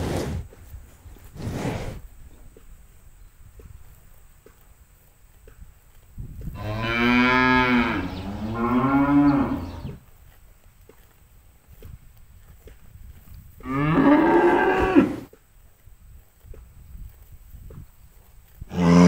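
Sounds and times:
cow mooing: 6.6s - 10.0s, 13.6s - 15.3s, 18.7s - 19.0s.

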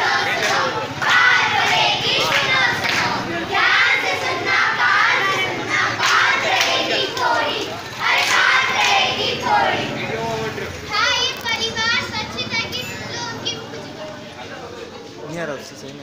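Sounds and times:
children singing together: 0.0s - 10.0s
hand clapping: 0.3s - 3.1s, 6.0s - 9.0s.

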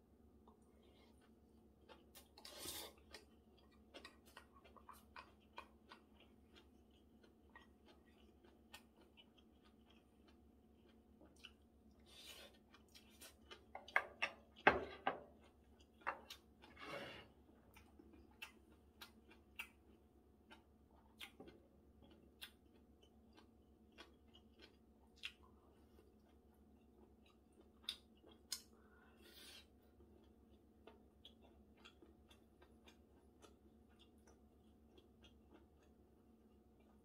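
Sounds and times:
chewing with wet mouth clicks: 0.4s - 14.6s, 15.2s - 16.8s, 17.6s - 29.0s, 30.0s - 37.0s
slurping noodles: 2.4s - 3.2s.

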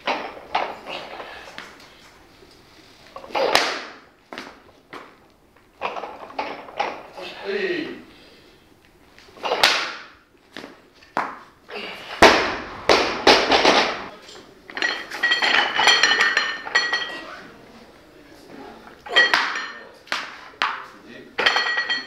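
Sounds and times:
barbell dropped with heavy thud: 12.1s - 14.1s
weight plates clinking on bar: 14.7s - 17.3s, 19.1s - 20.0s, 21.4s - 22.0s.

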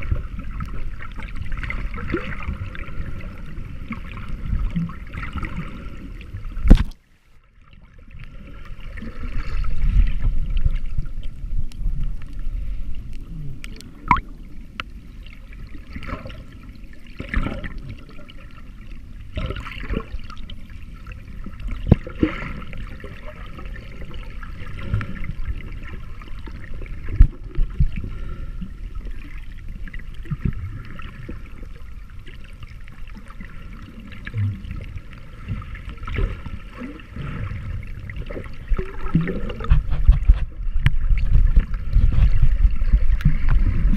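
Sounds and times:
muffled underwater water rumble: 0.0s - 43.9s
bubbling: 13.2s - 14.5s, 15.8s - 43.9s.

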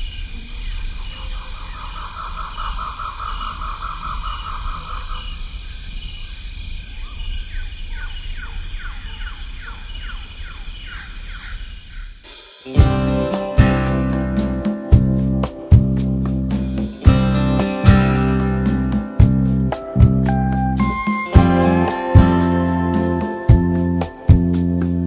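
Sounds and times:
birds calling: 0.0s - 25.0s
strummed acoustic guitar music: 12.7s - 25.0s
steady low rumble: 12.8s - 25.0s.

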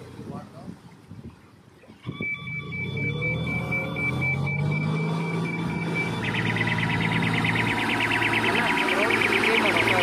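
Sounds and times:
electronic beeping: 2.0s - 10.0s
tractor engine running: 2.2s - 10.0s.

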